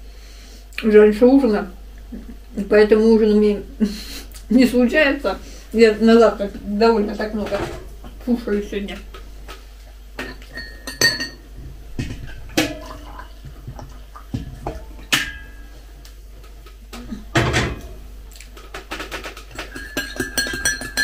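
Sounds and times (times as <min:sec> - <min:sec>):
kettle and mug clinking: 0:10.2 - 0:15.8, 0:19.2 - 0:21.0
kettle clattering on stove: 0:18.7 - 0:21.0.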